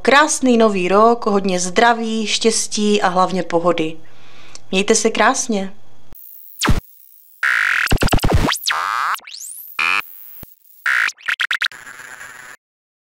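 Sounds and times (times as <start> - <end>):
rapid stuttering glitch bursts: 6.2 - 12.6
synthesized sweeping tones: 6.2 - 12.6.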